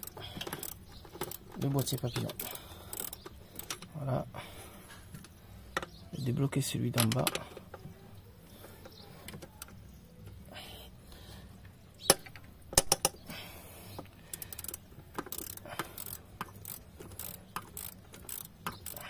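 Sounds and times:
ratchet clicking: 0.0 - 3.9, 14.2 - 19.0.

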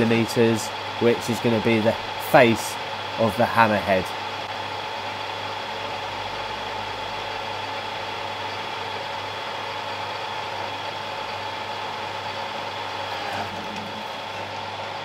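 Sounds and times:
lathe motor hum and whine: 0.0 - 15.0.

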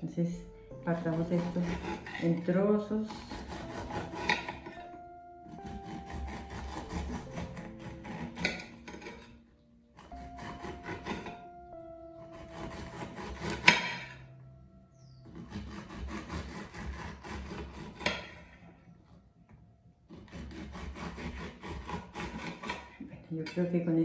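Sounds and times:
knife sawing through cabbage: 0.9 - 4.8, 5.5 - 9.3, 10.0 - 11.5, 12.3 - 14.2, 15.2 - 18.6, 20.1 - 23.0.

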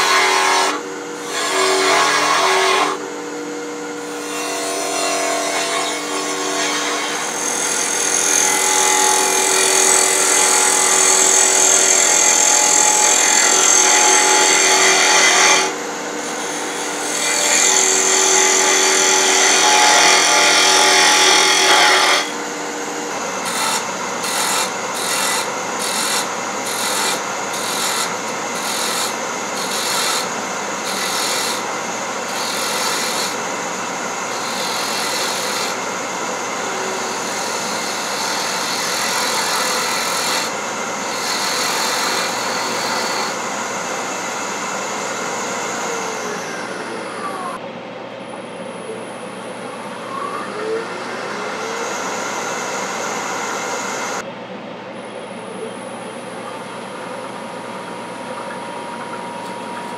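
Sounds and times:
wood lathe tool cutting: 0.0 - 3.1, 4.0 - 47.6, 50.1 - 54.2.

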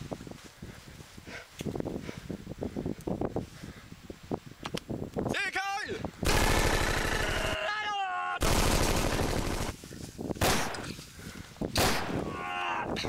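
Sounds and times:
machine-gun fire: 6.2 - 7.6, 8.4 - 9.8, 10.4 - 10.8
person crying out: 7.1 - 8.4, 12.1 - 13.0
single gunshots: 10.4 - 10.9, 11.8 - 12.2.

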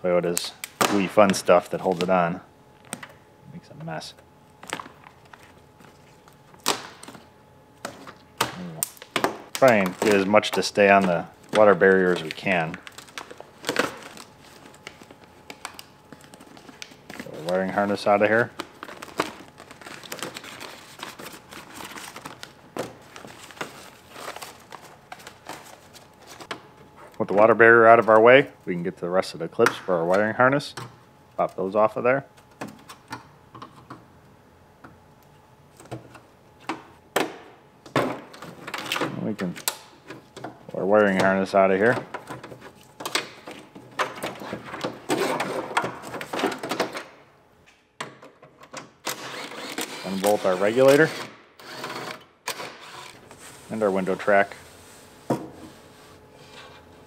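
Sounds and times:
plastic sheet crinkling: 9.0 - 11.0, 11.6 - 26.4.

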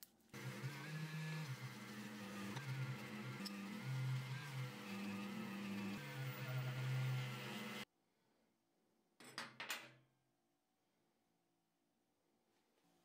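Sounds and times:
rotary tool motor whine: 0.4 - 7.9.

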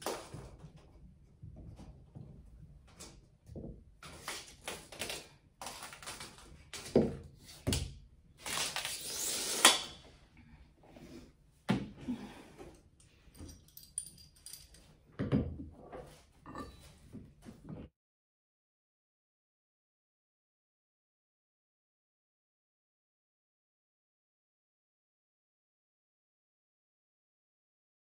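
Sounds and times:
metal tools knocking and clinking: 13.3 - 14.9.

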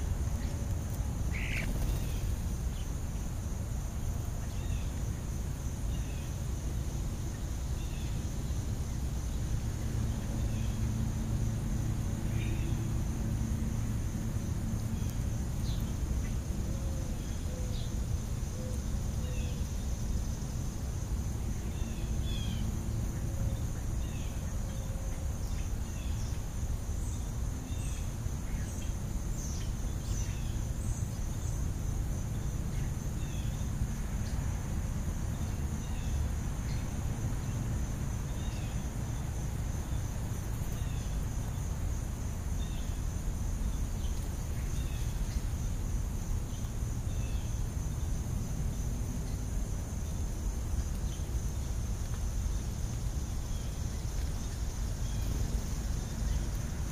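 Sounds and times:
sparrows chirping: 0.3 - 3.3.

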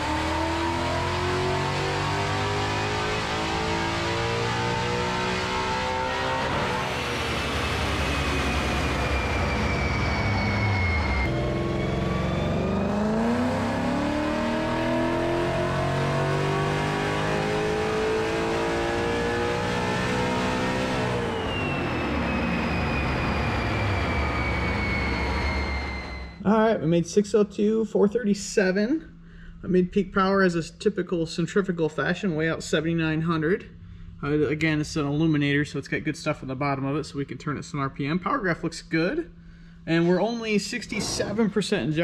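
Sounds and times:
car engine revving on dyno: 0.0 - 26.4
supercharger whine: 0.0 - 26.5, 39.1 - 42.0.

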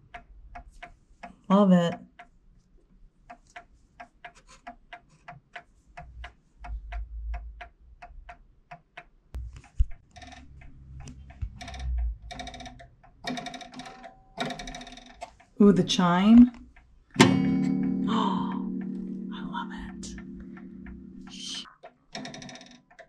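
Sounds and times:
clock ticking: 0.0 - 2.5, 3.2 - 23.0
low handling rumble: 10.5 - 12.3, 17.2 - 21.6.

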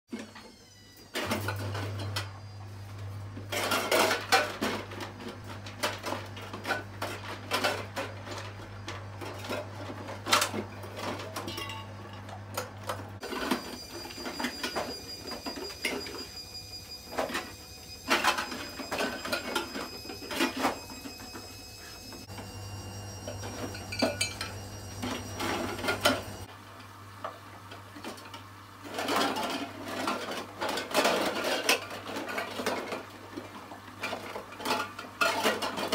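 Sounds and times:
metal tin cans clanking: 9.2 - 11.9.

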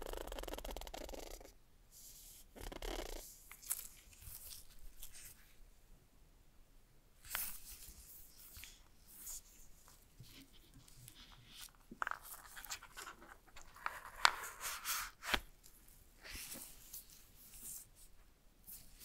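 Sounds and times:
gloved hands rustling and scraping: 3.4 - 5.6, 7.2 - 19.0.

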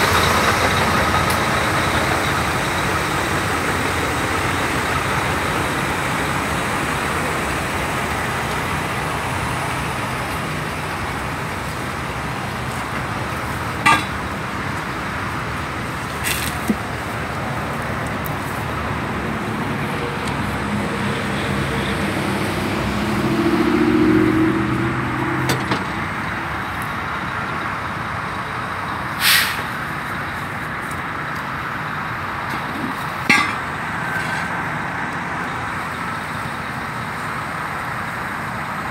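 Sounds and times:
vehicle engine passing: 0.0 - 27.1
roadside traffic: 0.0 - 38.9
short hisses: 29.2 - 29.7.

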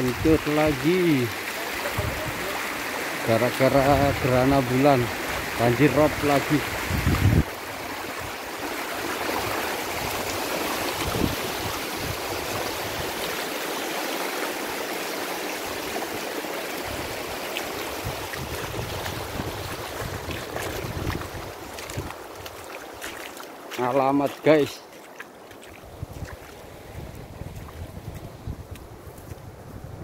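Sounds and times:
floodwater rushing: 0.0 - 29.2.

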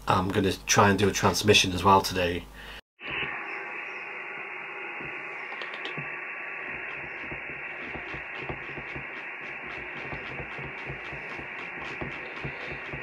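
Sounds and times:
radio receiver hiss: 3.0 - 13.0.

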